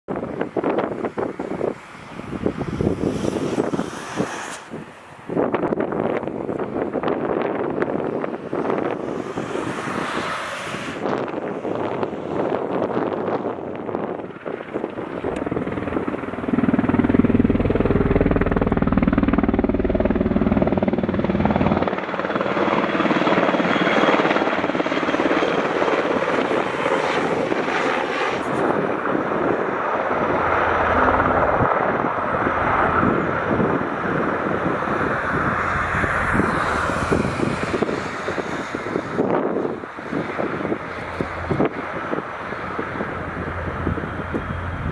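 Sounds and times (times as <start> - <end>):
helicopter rotor beating: 0.1 - 44.9
low hum: 15.3 - 21.9.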